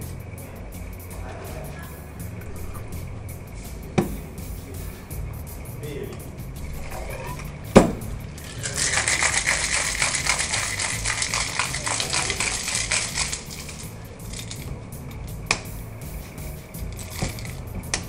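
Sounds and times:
sharp knock: 0:07.8 - 0:08.1
ice rattling in a shaker: 0:08.4 - 0:14.7, 0:16.9 - 0:17.6.

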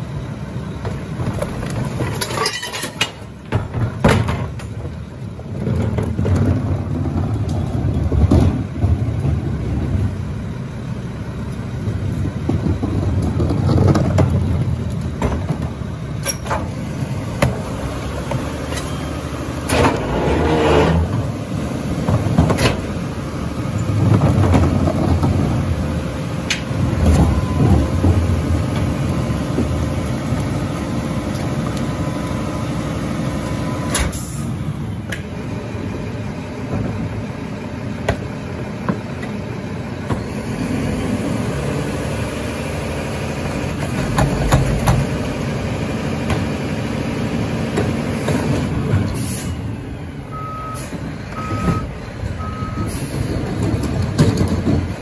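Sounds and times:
garbage truck diesel engine running: 0:00.0 - 0:55.0
backup alarm beeping: 0:50.3 - 0:53.0.

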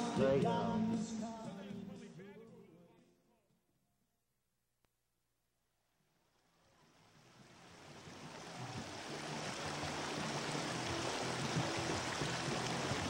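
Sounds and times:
water rushing over rocks: 0:07.2 - 0:13.0.

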